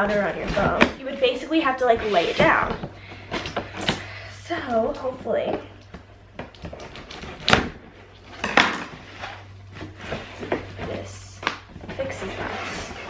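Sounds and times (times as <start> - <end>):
cardboard scraping and rustling: 0.0 - 3.8, 8.2 - 13.0.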